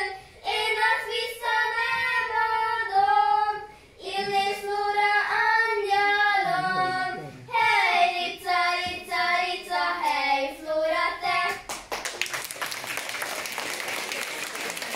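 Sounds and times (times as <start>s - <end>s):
children singing: 0.0s - 11.6s
audience applause: 11.7s - 14.9s.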